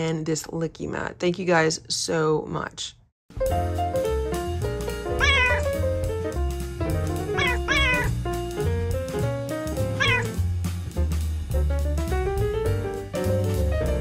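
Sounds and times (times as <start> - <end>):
background music with bass: 3.3 - 14.0
cat meowing: 5.2 - 5.8, 7.3 - 8.2, 10.0 - 10.4.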